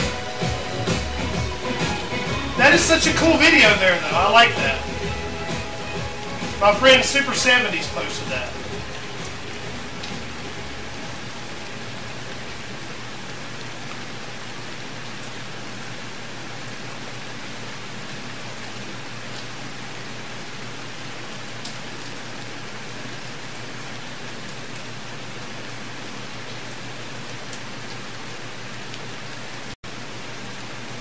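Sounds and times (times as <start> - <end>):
steady background hiss: 0.0 - 17.4.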